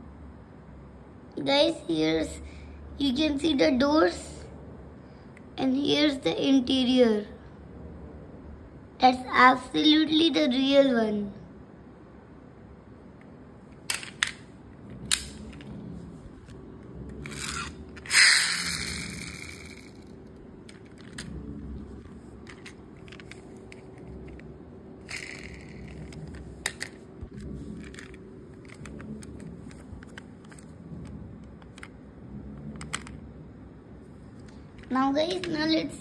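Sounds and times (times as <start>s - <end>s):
toy car clicks and taps: 13.9s - 14.4s, 17.3s - 20.0s, 25.1s - 27.0s
toy car scraping rush: 17.1s - 20.1s, 25.0s - 30.7s.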